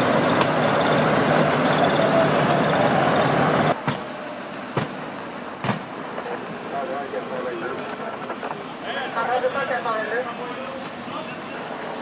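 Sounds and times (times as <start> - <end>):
fire engine running: 0.0 - 12.0.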